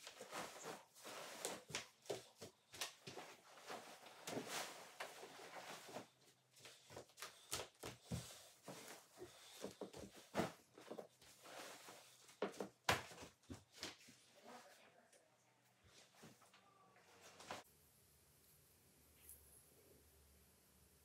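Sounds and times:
duvet fabric rustling: 0.0s - 12.5s
footsteps on hardwood floor: 0.0s - 14.2s.

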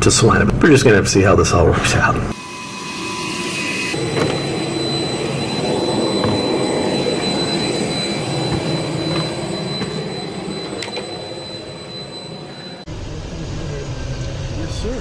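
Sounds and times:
jet turbine whine and rumble: 0.0s - 15.0s
thin high tone: 2.3s - 12.9s.

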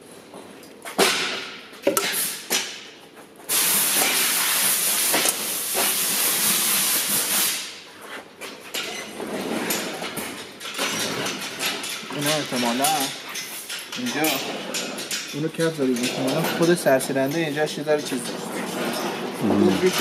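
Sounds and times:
metal clicks and clanks: 8.7s - 20.0s.

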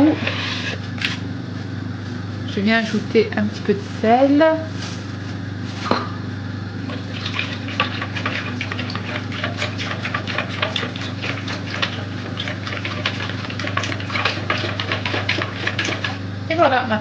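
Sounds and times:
steady low hum: 0.0s - 17.0s
liquid sloshing: 6.8s - 16.3s.

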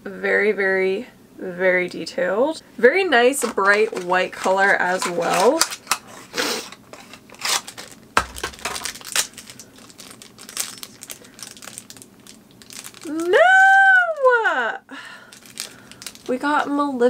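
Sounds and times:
plastic bag crinkling: 3.4s - 13.5s, 15.0s - 17.0s
person saying ooh: 13.0s - 14.8s.

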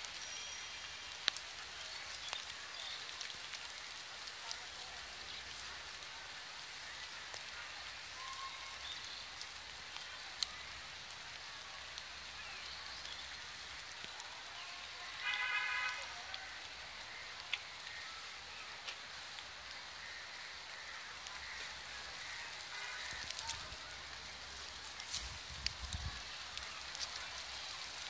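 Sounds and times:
light rain hissing: 0.0s - 28.0s
raindrop ticks: 0.0s - 28.0s
vehicle horn: 15.2s - 16.1s.

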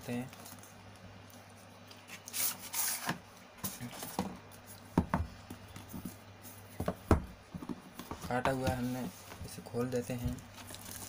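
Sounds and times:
cardboard taps and knocks: 5.0s - 6.2s, 6.8s - 8.8s
cardboard packaging rustle: 8.2s - 11.0s.

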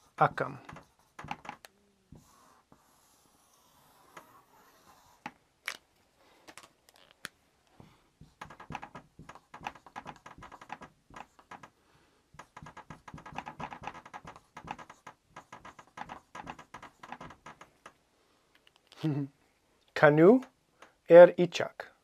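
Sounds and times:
marker scratching on whiteboard: 0.0s - 5.4s, 7.8s - 17.8s.

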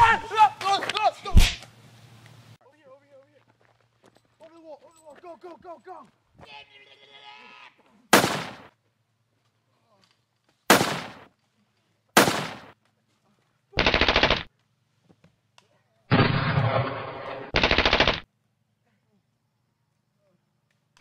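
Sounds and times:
single gunshots: 8.1s - 8.7s, 10.7s - 11.3s, 12.2s - 12.8s, 16.1s - 18.2s
automatic gunfire bursts: 8.2s - 8.7s, 10.7s - 11.2s, 12.2s - 12.7s, 13.8s - 14.5s, 17.5s - 18.2s.

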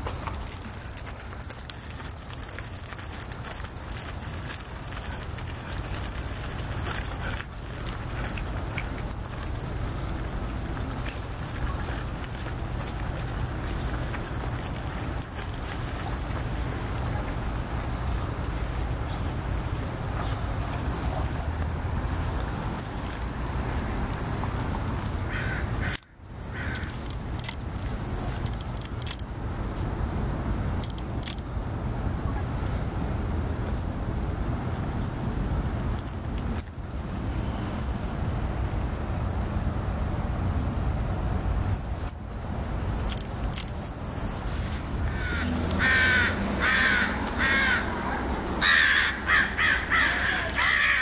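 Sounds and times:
otter chewing food: 0.0s - 19.0s
low outdoor rumble: 0.0s - 51.0s
harsh bird calls: 45.0s - 51.0s.

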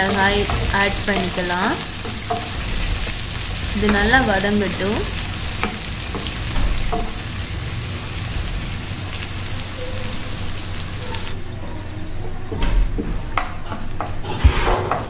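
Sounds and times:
wooden spoon scraping pan: 0.0s - 7.2s, 13.0s - 15.0s
onions sizzling in hot oil: 0.0s - 11.8s.

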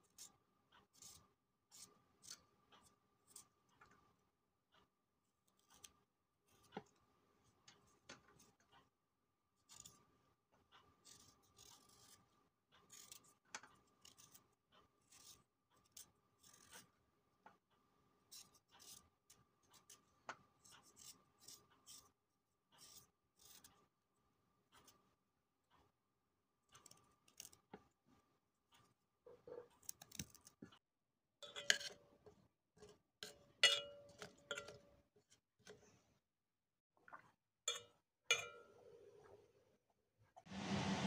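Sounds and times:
knife scraping root skin: 11.0s - 12.2s, 15.1s - 16.9s, 20.7s - 22.1s, 22.8s - 23.7s.

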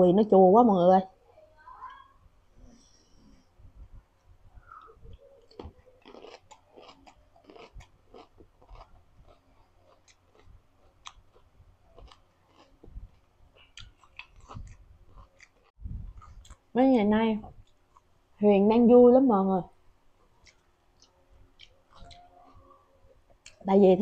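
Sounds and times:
chewing with wet crunches: 4.7s - 16.7s, 17.6s - 18.2s, 20.2s - 23.6s.

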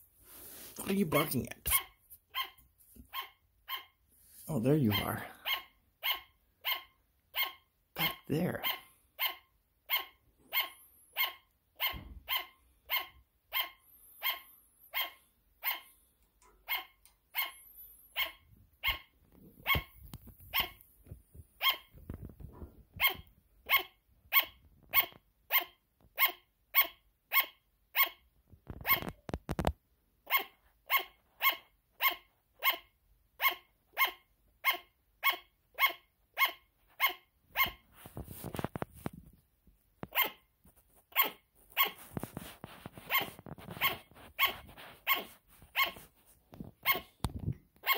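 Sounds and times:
sugar glider barking: 1.0s - 15.9s, 16.6s - 20.8s, 21.6s - 21.9s, 23.0s - 29.2s, 30.3s - 37.8s, 40.1s - 40.4s, 41.1s - 42.1s, 42.9s - 46.0s, 46.8s - 47.2s.

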